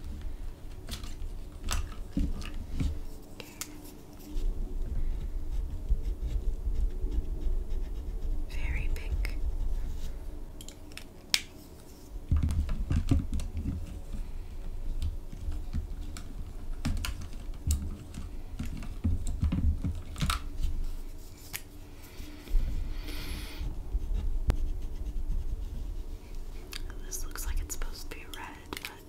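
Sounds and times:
plastic pens clicking and rattling: 0:28.2 - 0:29.0.

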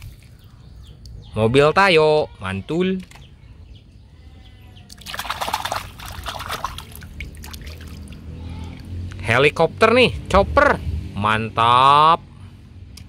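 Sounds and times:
water splashing and sloshing: 0:04.9 - 0:09.1.

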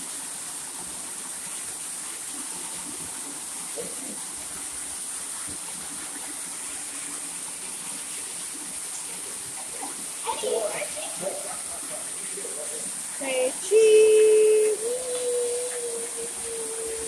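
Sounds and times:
small waterfall splashing into pool: 0:00.0 - 0:17.0.

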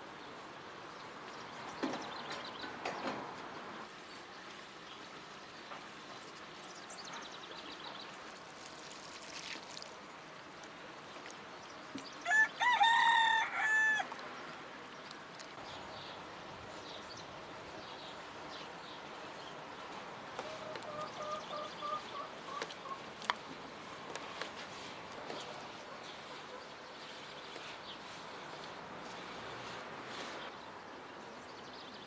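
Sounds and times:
rooster crowing: 0:12.2 - 0:14.1.

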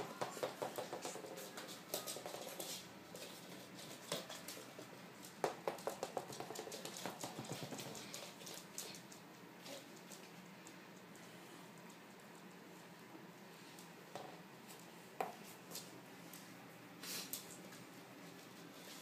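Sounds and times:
puppy claws skittering on floor: 0:00.1 - 0:11.1.

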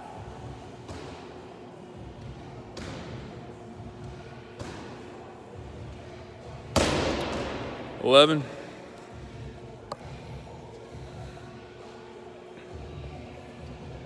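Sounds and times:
medicine ball thudding: 0:06.6 - 0:07.9.

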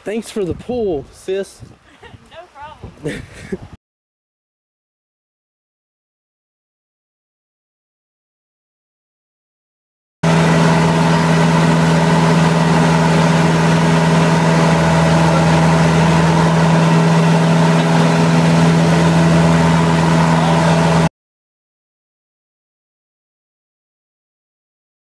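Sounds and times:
aircraft engine drone in cockpit: 0:10.2 - 0:21.1.

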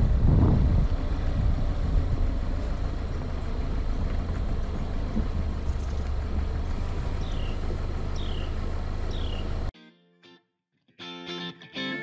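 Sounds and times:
car engine low rumble: 0:00.0 - 0:09.7.

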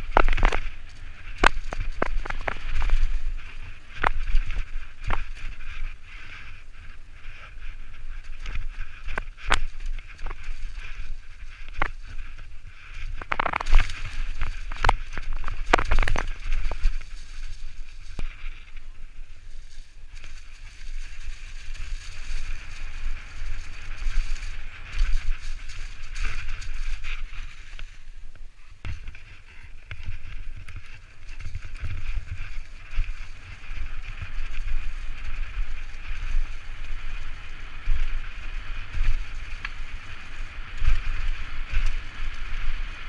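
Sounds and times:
bike knocking on rocks: 0:00.0 - 0:03.2, 0:13.1 - 0:17.6
tyres on leaves and rock: 0:00.0 - 0:43.0
wind on microphone: 0:00.0 - 0:43.0.

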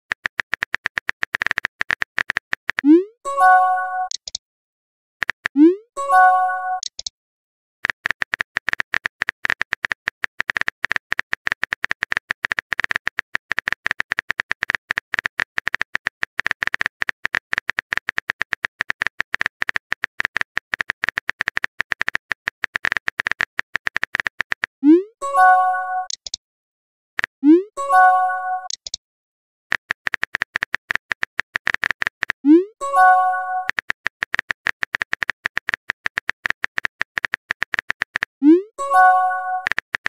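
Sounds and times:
rapid keyboard typing clicks: 0:00.1 - 0:03.0, 0:05.2 - 0:05.7, 0:07.8 - 0:24.8, 0:29.7 - 0:40.0
message chime: 0:02.9 - 0:04.1, 0:06.0 - 0:06.8, 0:32.8 - 0:33.7, 0:38.8 - 0:39.7.

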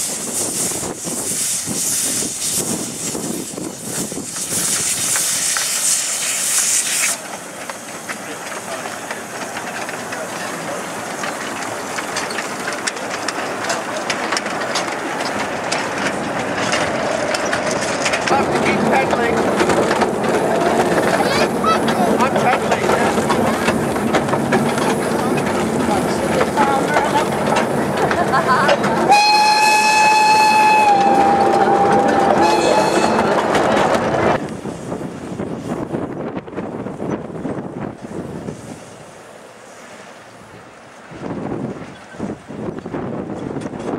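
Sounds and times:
wind noise: 0:00.0 - 0:06.9, 0:14.3 - 0:39.0, 0:40.4 - 0:43.9
steam locomotive hissing: 0:00.0 - 0:43.9
wheels clicking over rail joints: 0:02.2 - 0:43.9
steam locomotive whistle: 0:29.1 - 0:33.6.

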